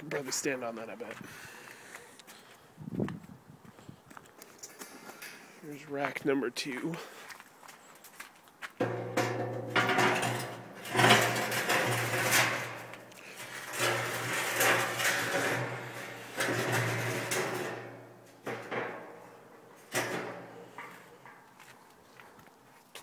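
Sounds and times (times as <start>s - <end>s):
metal grill racks scraping: 8.8s - 21.5s.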